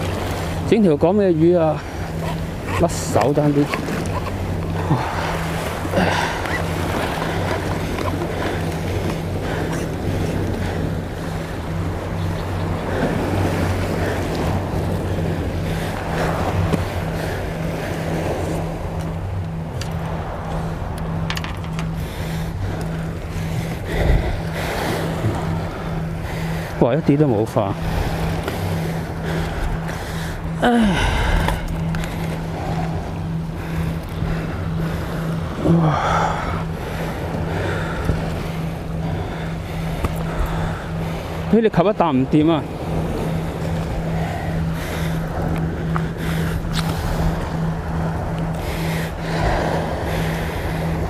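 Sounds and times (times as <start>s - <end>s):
waves washing against rocks: 0.0s - 12.1s
low steady hum: 0.0s - 51.0s
sea waves washing against rocks: 0.0s - 51.0s
wind on microphone: 0.0s - 51.0s.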